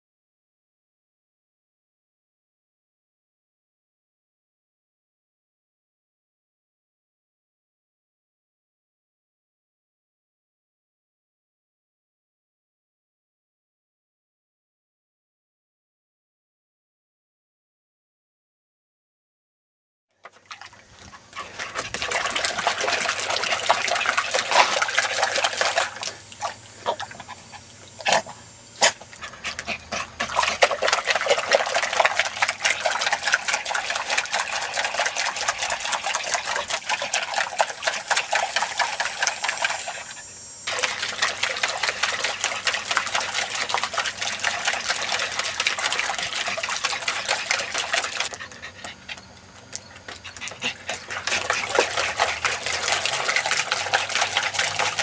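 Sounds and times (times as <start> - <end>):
dog splashing water in bucket: 20.2 - 55.0.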